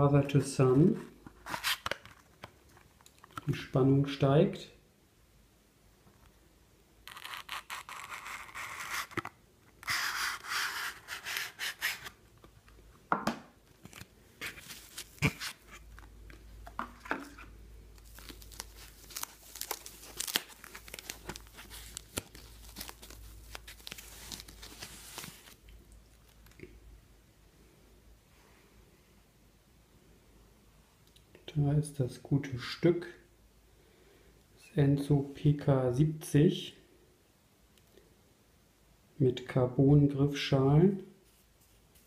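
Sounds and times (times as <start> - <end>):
packaging tearing: 7.1 - 12.2, 18.0 - 25.6
wrapping crinkling: 13.7 - 16.4, 17.2 - 26.6.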